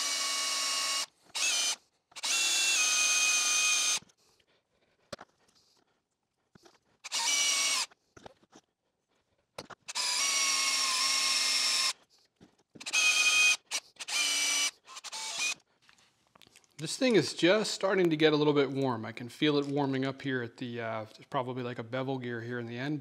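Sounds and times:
power drill whining: 0:00.0 - 0:04.1, 0:07.0 - 0:08.0, 0:09.9 - 0:12.0, 0:12.8 - 0:15.6.

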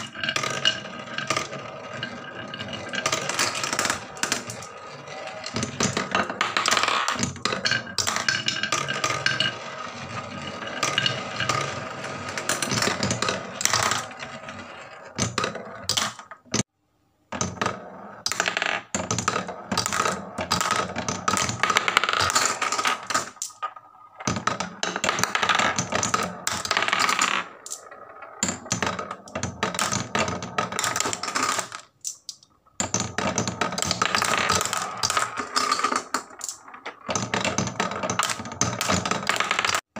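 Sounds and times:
marbles clicking on wooden tracks: 0:00.0 - 0:16.7, 0:17.4 - 0:39.9.

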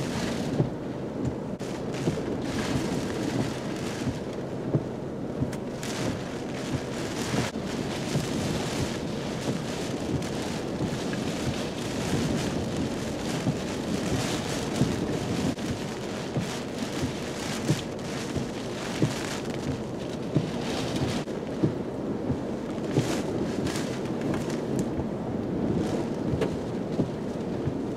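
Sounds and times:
wind and heavy rain rushing: 0:00.0 - 0:27.9
wind gusts thumping microphone: 0:00.0 - 0:27.9.

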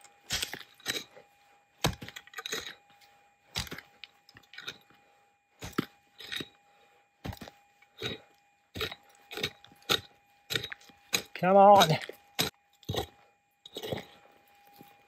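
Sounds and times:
faint steady tone: 0:00.0 - 0:15.0
pick chopping into clay and gravel: 0:01.8 - 0:02.7, 0:03.6 - 0:03.8.

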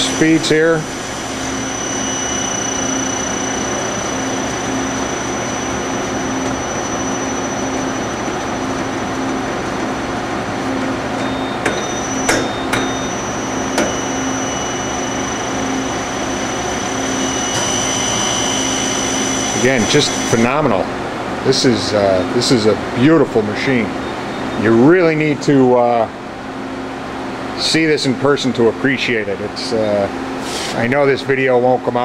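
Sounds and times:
lathe spindle whirring: 0:00.0 - 0:21.2.

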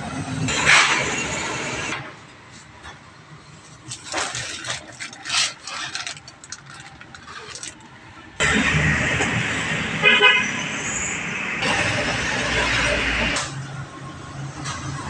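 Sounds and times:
loud steady noise: 0:00.0 - 0:02.2, 0:08.3 - 0:13.8
plastic packaging crinkling: 0:03.8 - 0:08.0.

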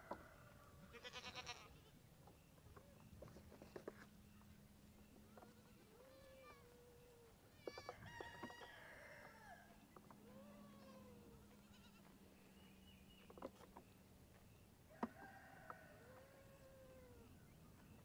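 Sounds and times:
goat kids bleating: 0:00.8 - 0:02.0, 0:05.3 - 0:08.0, 0:10.2 - 0:12.2.

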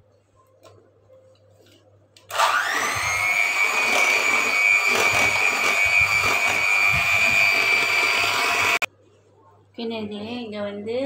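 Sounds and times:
electric hand mixer whine: 0:02.3 - 0:08.9.

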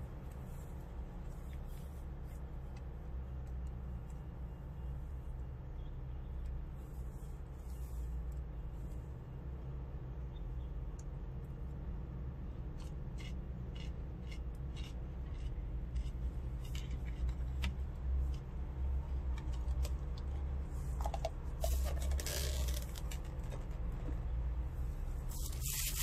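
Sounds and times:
plastic lids and bag crinkling: 0:21.0 - 0:24.2.

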